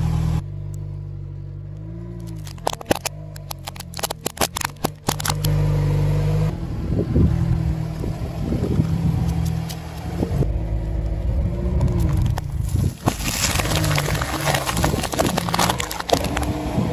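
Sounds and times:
car engine running: 0.0s - 16.9s
cardboard cans crackling crushed: 2.2s - 5.5s, 12.0s - 16.6s
tyre crushing objects reversed: 12.1s - 16.7s.

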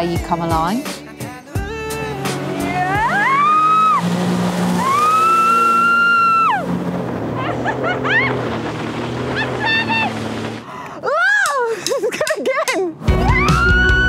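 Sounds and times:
background music: 0.0s - 5.7s, 12.9s - 14.0s
jet ski engine whining: 1.6s - 11.0s.

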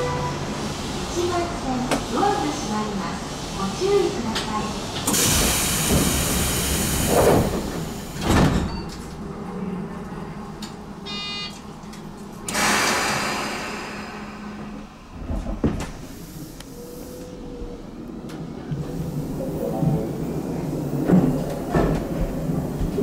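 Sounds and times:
train doors sliding shut: 4.1s - 9.2s, 10.6s - 23.0s
short beep: 11.1s - 11.6s
compressed-air hiss: 12.5s - 14.6s.

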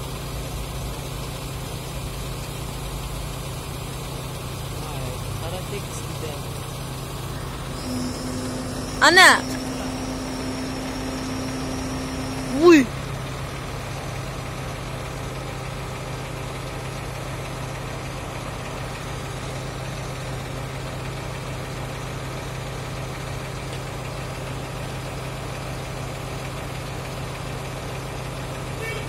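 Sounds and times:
diesel engine humming: 0.0s - 29.0s.

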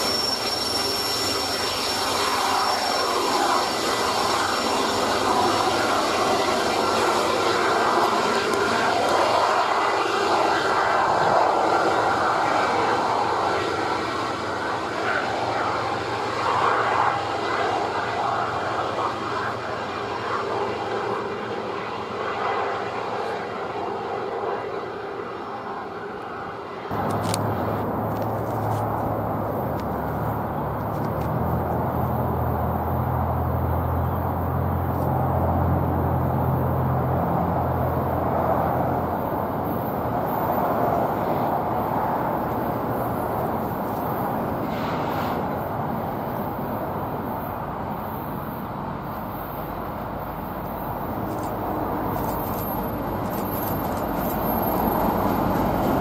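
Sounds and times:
distant diesel locomotive drone: 0.0s - 56.0s
train wheels on rails: 0.0s - 56.0s
low engine drone: 26.9s - 45.9s.

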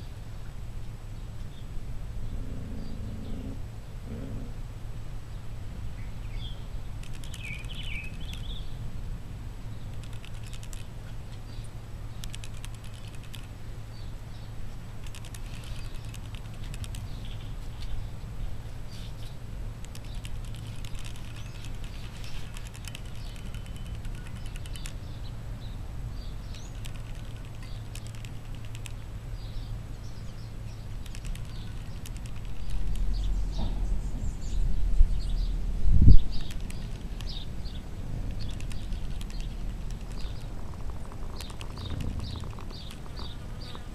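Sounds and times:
low hum: 0.0s - 43.9s
faint chirps: 19.9s - 25.0s.

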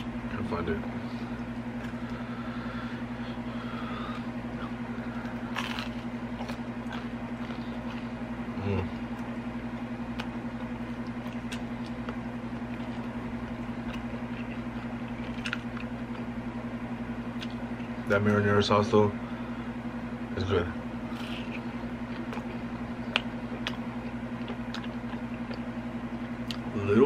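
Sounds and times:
low electrical hum: 0.0s - 27.0s
chewing crackles: 4.1s - 16.4s, 17.2s - 18.1s, 21.0s - 26.7s.

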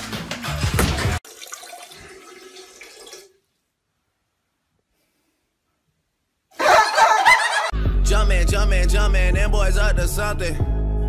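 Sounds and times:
toilet flushing: 1.2s - 3.4s.

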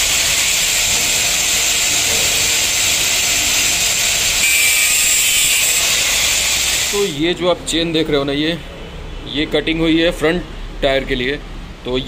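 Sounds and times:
angle grinder cutting steel chain: 0.0s - 7.2s.

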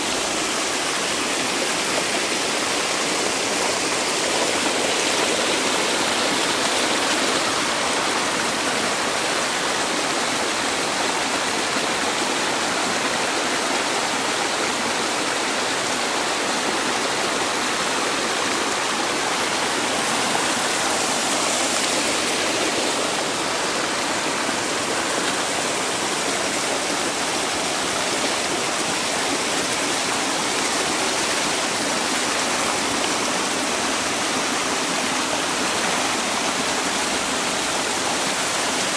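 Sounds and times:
creek cascading over boulders: 0.0s - 38.9s.

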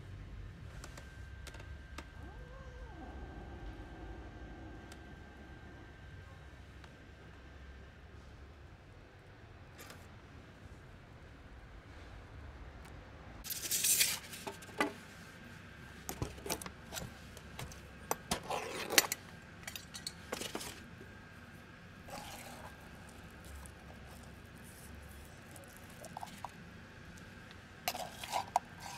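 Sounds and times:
rustling scrape: 13.5s - 14.7s, 27.9s - 28.9s
spoon clinking and scraping tin can: 27.9s - 28.9s.

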